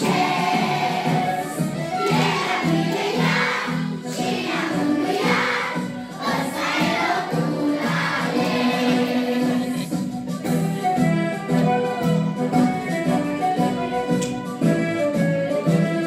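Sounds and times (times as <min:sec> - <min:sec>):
children's choir singing: 0:00.0 - 0:10.0.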